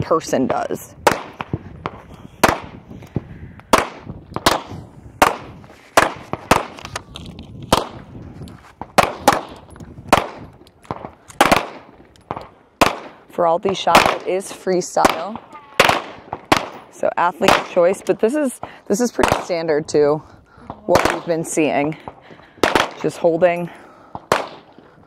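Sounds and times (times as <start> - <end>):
pistol shots: 1.0 - 2.8, 3.7 - 6.8, 7.7 - 8.0, 8.9 - 13.2, 13.8 - 18.0, 18.6 - 19.7, 20.7 - 23.4, 24.1 - 24.9.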